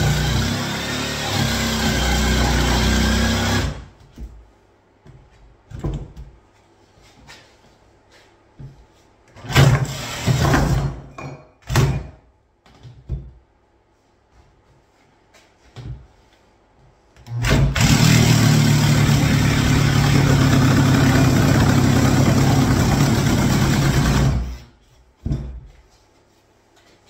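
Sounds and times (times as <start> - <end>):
jigsaw cutting worktop: 0.0 - 3.9, 9.5 - 11.0, 17.4 - 24.6.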